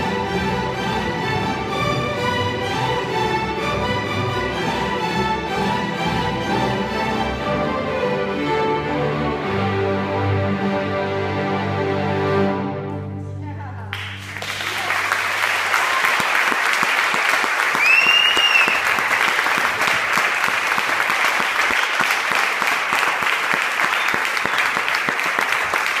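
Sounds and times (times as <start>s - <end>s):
orchestra low chord: 0.0s - 14.6s
audience applauding: 13.9s - 26.0s
whistle from audience: 17.7s - 19.0s, 23.9s - 24.8s.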